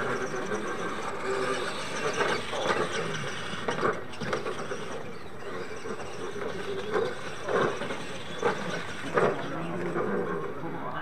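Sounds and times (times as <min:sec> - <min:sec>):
rc trucks running on dirt: 0:00.0 - 0:11.0.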